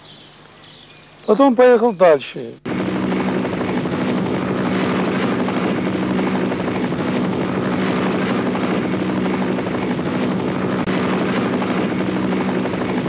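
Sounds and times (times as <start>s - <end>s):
helicopter engine and rotor: 2.6s - 13.0s.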